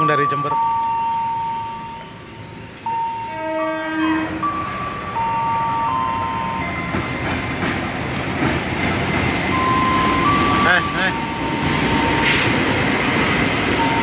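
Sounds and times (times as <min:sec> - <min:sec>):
train rumbling past: 0:00.6 - 0:14.0
locomotive horn blast: 0:03.2 - 0:04.8.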